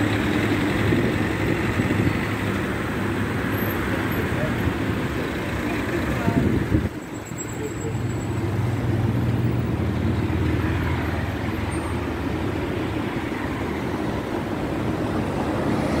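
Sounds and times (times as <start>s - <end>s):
car engine hum and road noise: 0.0s - 16.0s.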